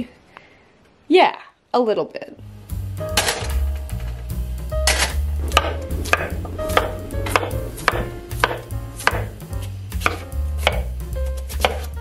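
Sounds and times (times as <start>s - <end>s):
knife slicing potatoes on board: 8.4s - 12.0s.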